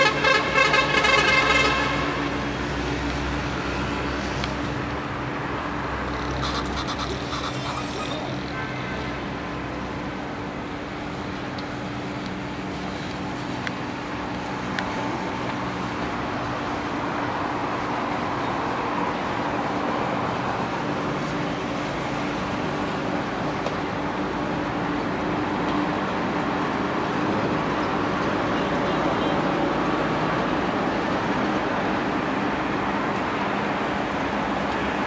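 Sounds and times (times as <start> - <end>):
house fire roaring: 0.6 - 34.9.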